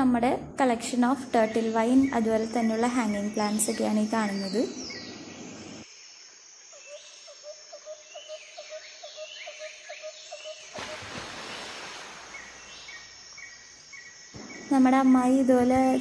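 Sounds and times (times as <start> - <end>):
high bird chirps: 1.3 - 5.8.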